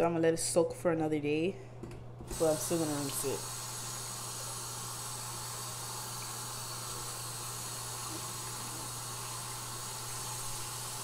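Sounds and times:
tap water running into sink: 0:02.3 - 0:11.0.

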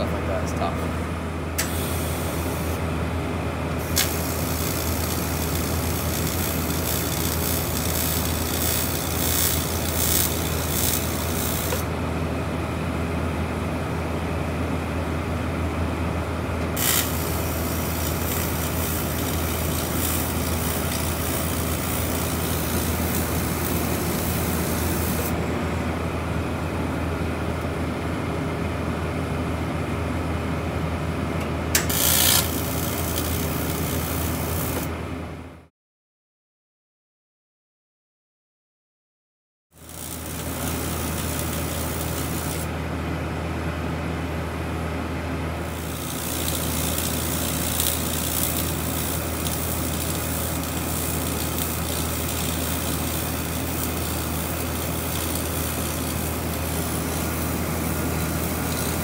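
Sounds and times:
welding machine low hum: 0:00.0 - 0:35.7, 0:39.7 - 0:59.0
hissing welding arc: 0:03.8 - 0:11.9, 0:16.8 - 0:25.3, 0:31.8 - 0:34.9, 0:39.8 - 0:42.7, 0:45.6 - 0:59.0.

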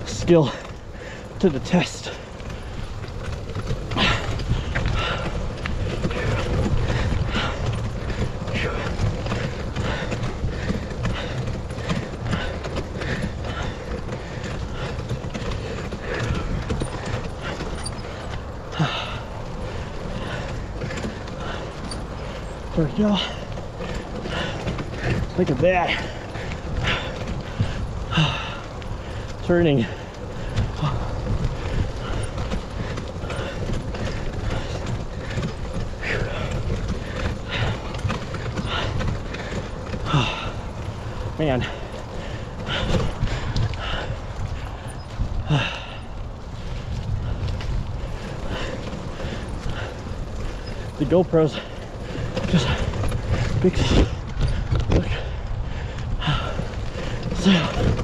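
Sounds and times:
rhythmic bike clatter: 0:00.0 - 0:58.0
tyres rumbling on dirt: 0:00.0 - 0:58.0
wind on microphone: 0:51.8 - 0:58.0.

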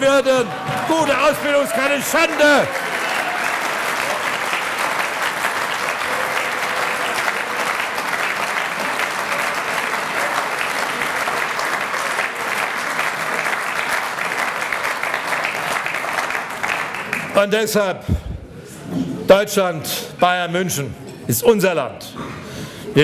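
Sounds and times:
large audience applauding: 0:00.0 - 0:17.8.

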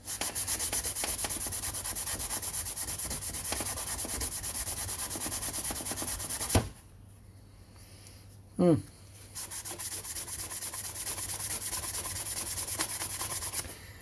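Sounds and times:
thump: 0:06.5 - 0:06.8.

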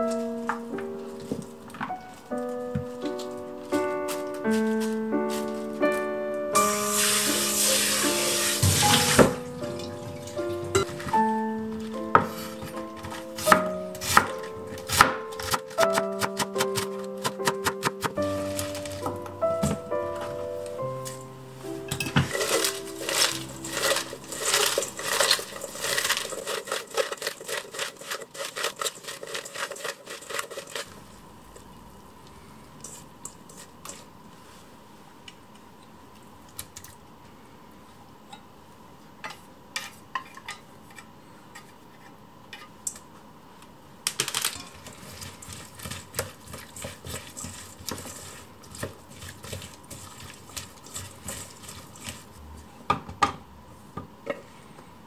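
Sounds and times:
hands tossing wet cabbage: 0:01.1 - 0:32.0, 0:44.1 - 0:52.4.

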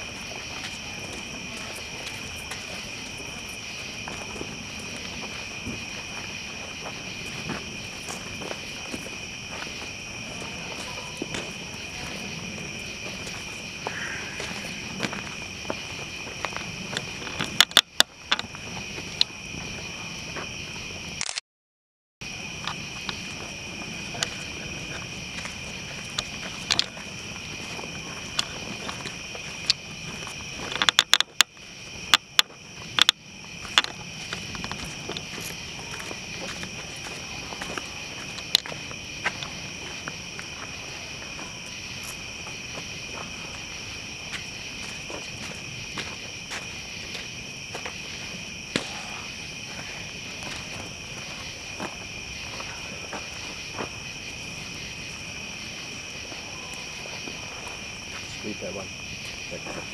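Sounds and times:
night insects chirping: 0:00.0 - 0:21.3, 0:22.2 - 0:59.9.

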